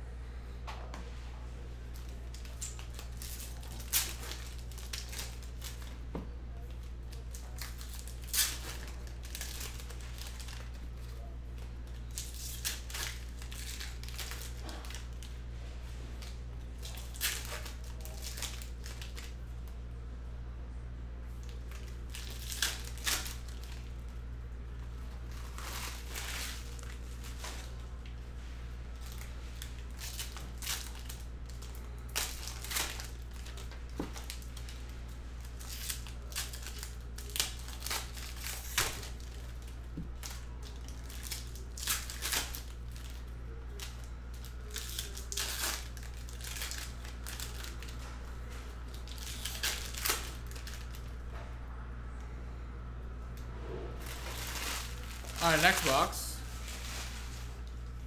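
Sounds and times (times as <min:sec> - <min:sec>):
steady low hum: 0:00.0 - 0:58.0
card packs being torn open: 0:01.9 - 0:15.4, 0:16.2 - 0:19.4, 0:21.4 - 0:24.0, 0:25.3 - 0:28.1, 0:29.0 - 0:34.8, 0:35.4 - 0:48.1, 0:48.8 - 0:51.1, 0:54.0 - 0:57.8
foil wrapper crinkling: 0:01.9 - 0:19.8, 0:21.3 - 0:51.2, 0:54.0 - 0:58.0
cards rustling: 0:54.0 - 0:57.9.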